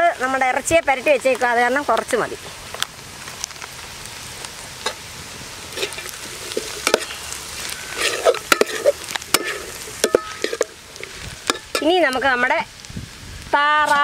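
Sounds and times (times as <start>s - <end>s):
onions sizzling in oil: 0.0s - 14.0s
spoon scraping and clinking pot: 7.9s - 10.8s.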